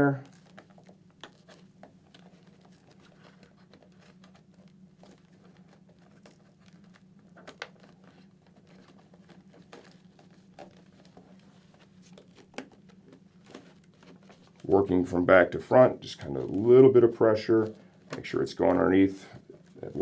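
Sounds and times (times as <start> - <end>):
foam pad rustling and scratching: 0.0 - 20.0
steady low hum: 0.0 - 20.0.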